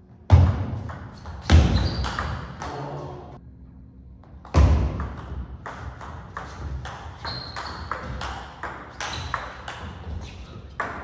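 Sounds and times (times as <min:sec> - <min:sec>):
shoes squeaking: 0:01.1 - 0:02.6, 0:06.4 - 0:11.0.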